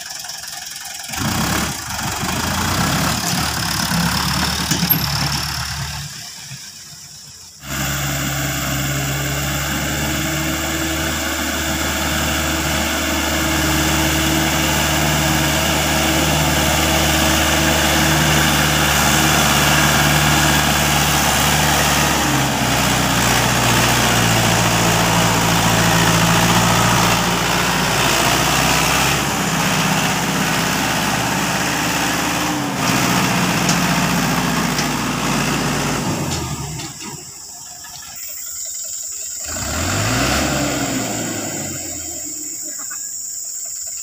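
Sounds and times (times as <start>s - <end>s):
tractor diesel engine under load: 0.0s - 44.0s.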